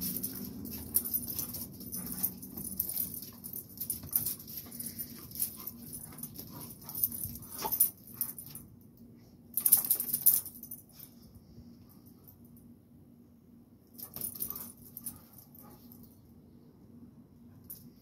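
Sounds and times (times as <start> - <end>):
dogs scuffling and growling: 0.0 - 8.6.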